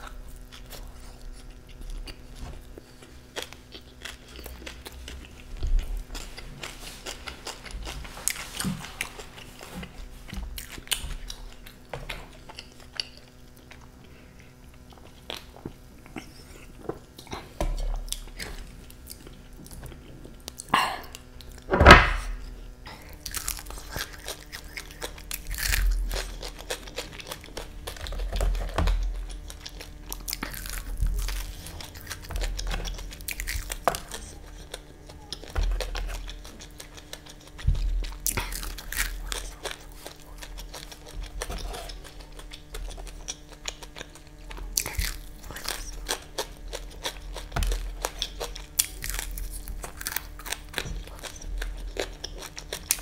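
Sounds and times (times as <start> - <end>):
crunching and chewing: 0.0 - 53.0
crunchy bite: 23.2 - 53.0.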